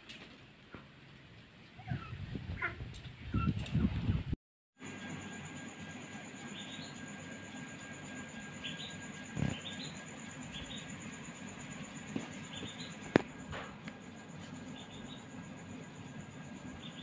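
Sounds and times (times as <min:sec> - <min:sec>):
bird chirping: 0:08.6 - 0:10.9, 0:12.4 - 0:13.0, 0:14.7 - 0:15.3.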